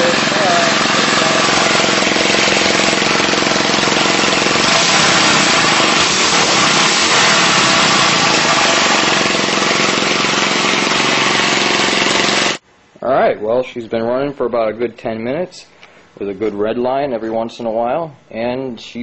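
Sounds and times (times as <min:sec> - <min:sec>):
lawnmower engine running: 0:00.0 - 0:12.6.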